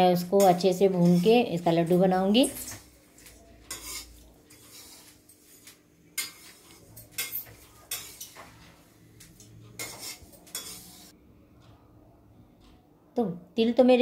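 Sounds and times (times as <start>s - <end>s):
metal spoon stirring seeds in pan: 0.4s - 11.1s.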